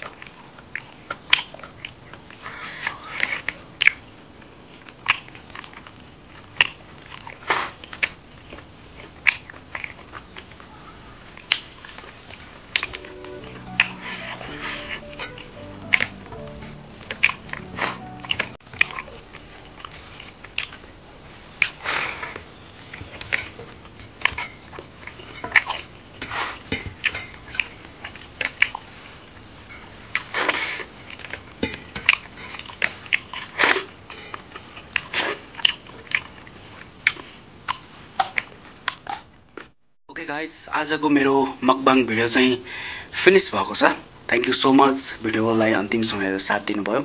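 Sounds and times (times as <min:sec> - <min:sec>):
chewing and mouth smacks: 0:00.0 - 0:10.7, 0:11.3 - 0:13.0, 0:18.3 - 0:20.9, 0:21.6 - 0:29.5, 0:30.1 - 0:39.7.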